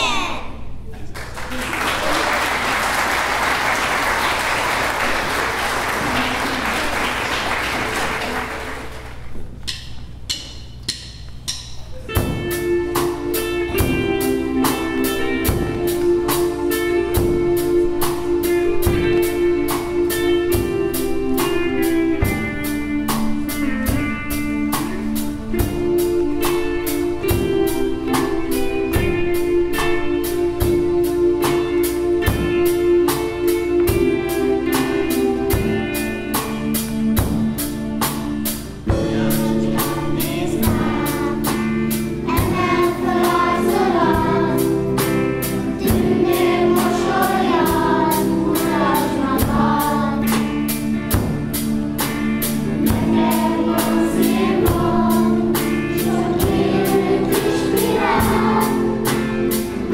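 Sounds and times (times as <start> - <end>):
audience applause: 1.1 - 9.3
drum kit beat: 4.3 - 59.9
electric guitar: 12.1 - 59.9.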